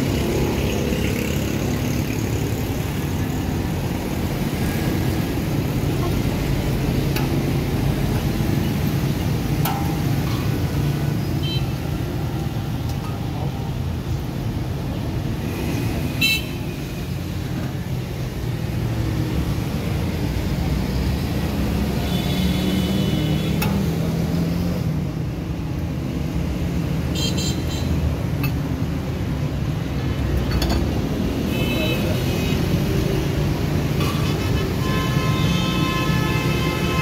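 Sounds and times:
traffic engines rumbling: 0.0 - 37.0
vehicle horns tooting: 34.1 - 37.0.

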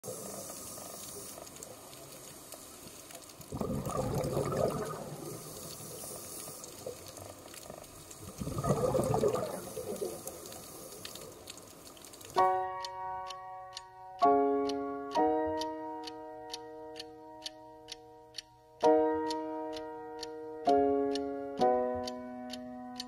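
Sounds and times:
underwater hiss: 0.0 - 7.5, 8.1 - 11.9
scuba regulator exhaled bubbles: 3.5 - 7.2, 8.2 - 11.2.

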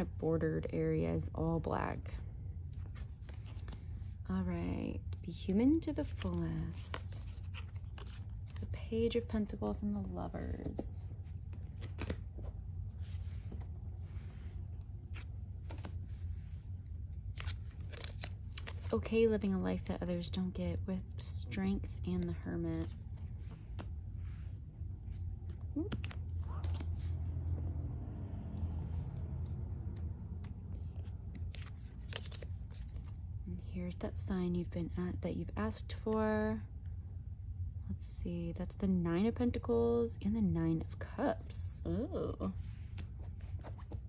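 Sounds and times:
steady low hum: 0.0 - 44.0
cards clicking and sliding: 11.5 - 13.7, 14.8 - 16.0, 17.4 - 18.8, 22.2 - 24.0, 25.1 - 27.1, 29.9 - 33.2.

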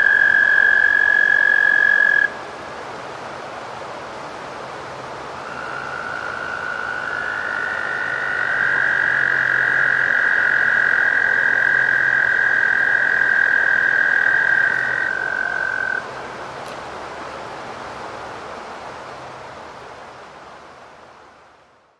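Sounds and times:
toads trilling: 0.0 - 2.3, 5.4 - 16.0.

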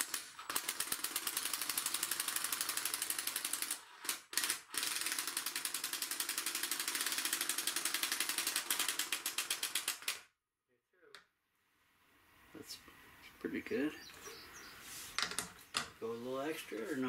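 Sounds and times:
impact driver rattling: 0.0 - 10.2.

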